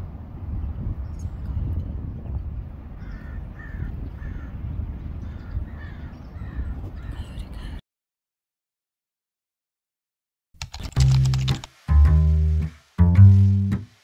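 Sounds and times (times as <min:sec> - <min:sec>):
bird cawing: 0:03.0 - 0:04.6, 0:05.2 - 0:07.3.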